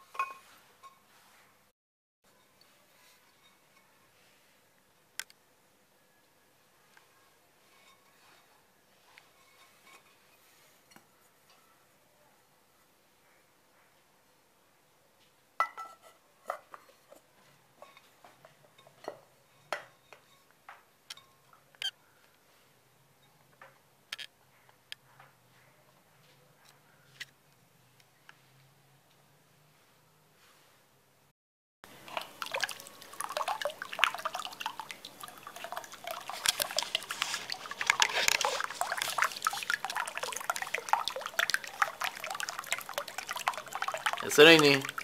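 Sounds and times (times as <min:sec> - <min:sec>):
metal bowl and pots clinking: 0:00.0 - 0:01.0, 0:17.8 - 0:20.5, 0:32.0 - 0:45.0
fountain splashing and dripping: 0:31.9 - 0:45.0.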